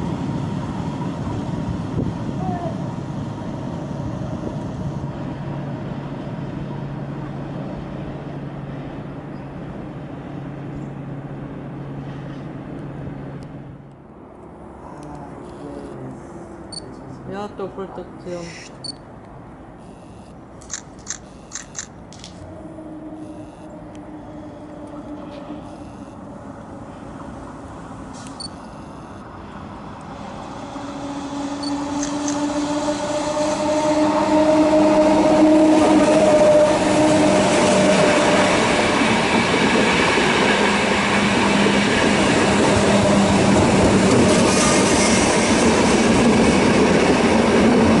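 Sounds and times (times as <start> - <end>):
electric train whining: 0.0 - 9.8, 22.4 - 48.0
train wheels rumbling on rails: 29.6 - 48.0.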